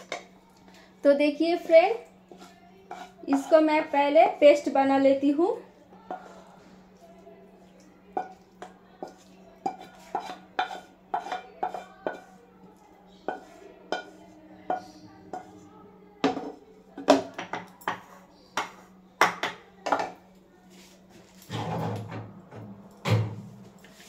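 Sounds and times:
wooden spatula scraping a pan: 1.6s - 4.7s, 8.2s - 12.4s, 13.2s - 15.6s, 20.7s - 22.1s.

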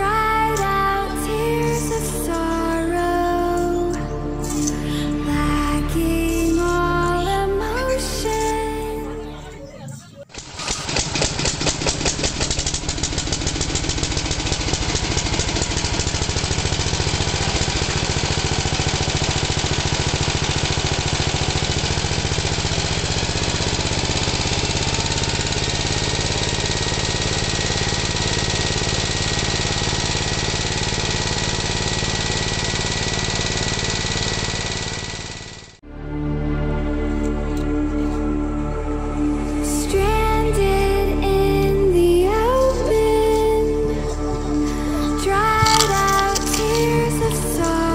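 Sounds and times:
small motor chugging: 10.3s - 35.8s, 42.4s - 47.9s.

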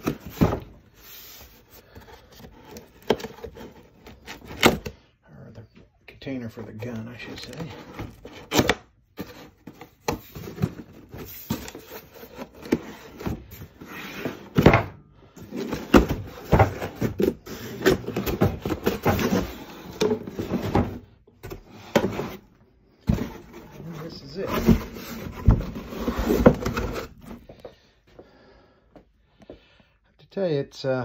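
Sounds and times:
cardboard box scrapes and knocks: 15.4s - 27.5s.

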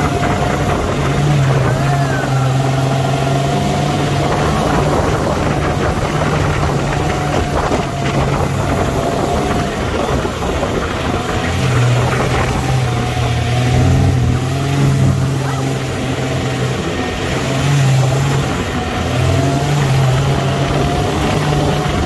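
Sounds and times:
rushing wind: 0.0s - 22.0s
vehicle engine running: 0.0s - 22.0s.

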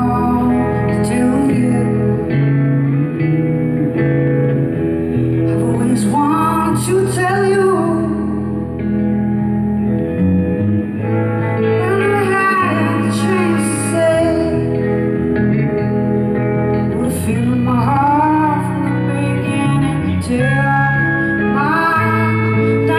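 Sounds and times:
woman singing: 0.0s - 2.6s, 5.5s - 8.7s, 11.6s - 15.3s, 16.7s - 22.9s
electric guitar: 0.0s - 22.9s.

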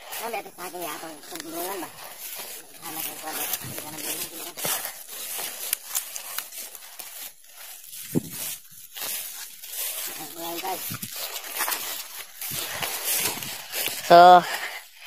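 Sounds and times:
brushing through wet vegetation: 0.0s - 15.0s
footsteps on forest trail: 0.0s - 15.0s.

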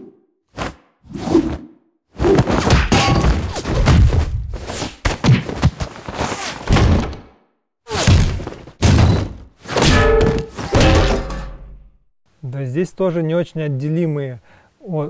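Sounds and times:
cartoonish punches and thuds: 2.2s - 5.9s, 6.6s - 11.8s.

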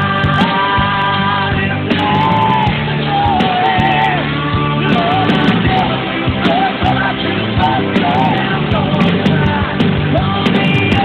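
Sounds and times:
rock music: 0.0s - 11.0s.

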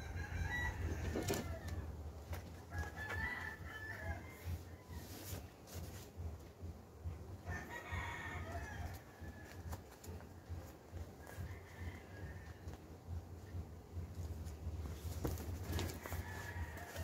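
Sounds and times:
rooster crowing: 0.0s - 1.9s, 2.7s - 5.3s, 7.4s - 10.1s, 11.2s - 12.8s, 15.7s - 17.0s
paper rustling: 14.8s - 17.0s.

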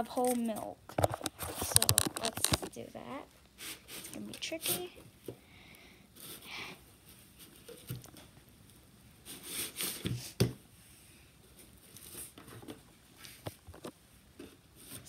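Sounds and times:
soft rustles and scuffs: 0.1s - 5.0s.

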